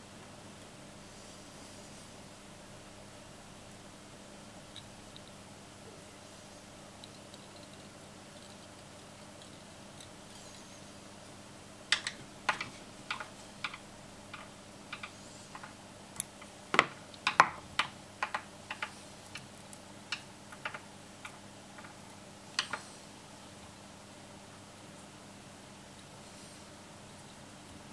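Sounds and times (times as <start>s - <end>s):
small clicks and taps from hands: 11.9s - 22.9s.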